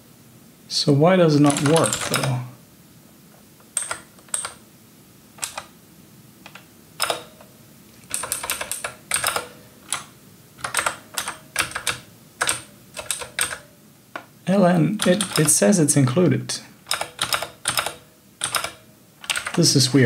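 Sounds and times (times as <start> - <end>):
keyboard keystrokes clicking: 1.5 - 2.4, 3.7 - 4.6, 5.4 - 5.7, 6.5 - 7.5, 8.1 - 14.3, 15.0 - 16.2, 16.9 - 19.6.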